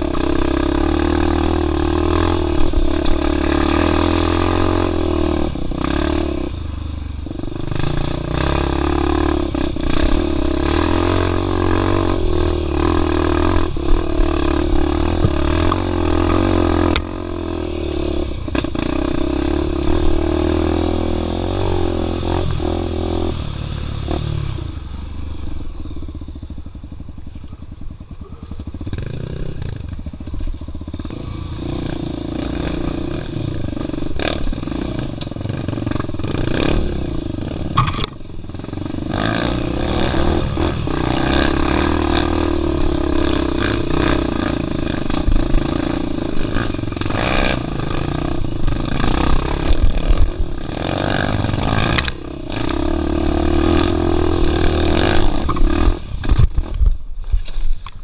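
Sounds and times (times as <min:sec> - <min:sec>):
dirt bike engine revving: 0:00.0 - 0:56.9
sharp knocks from bike: 0:37.7 - 0:38.2.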